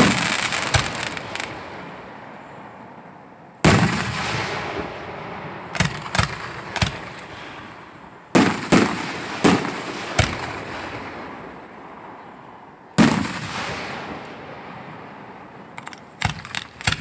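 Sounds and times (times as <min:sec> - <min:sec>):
firework shells bursting: 0:00.0 - 0:02.1, 0:05.6 - 0:11.5, 0:15.8 - 0:17.0.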